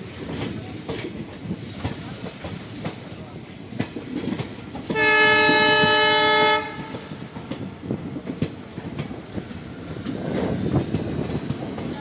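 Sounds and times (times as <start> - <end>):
train coaches running on track: 0.0 - 12.0
train horn blast: 4.9 - 7.1.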